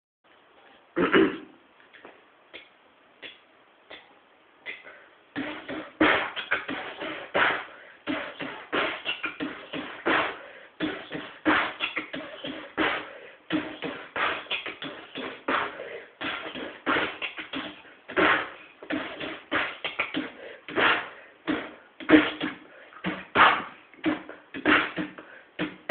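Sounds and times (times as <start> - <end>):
beatboxing mouth drum sounds: 1.0 - 25.9
soft mouth clicks: 1.8 - 7.0, 16.2 - 20.9.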